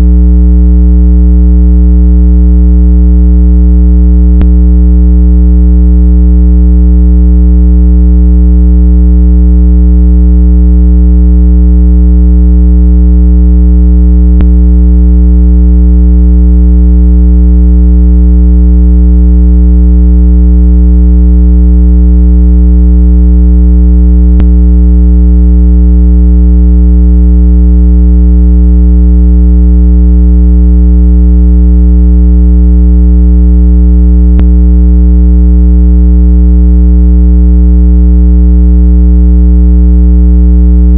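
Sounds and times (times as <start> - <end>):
low electronic hum: 0.0 - 0.2, 4.3 - 4.8, 14.2 - 14.6, 24.3 - 24.6, 34.3 - 34.5.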